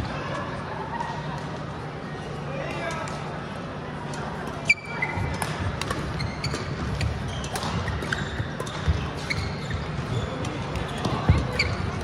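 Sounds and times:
murmur of the hall: 0:00.0 - 0:12.0
shoe squeak: 0:04.6 - 0:05.4, 0:06.0 - 0:12.0.

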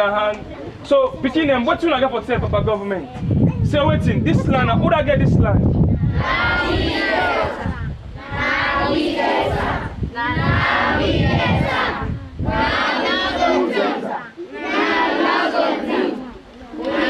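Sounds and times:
children chanting in unison: 0:06.0 - 0:17.0.

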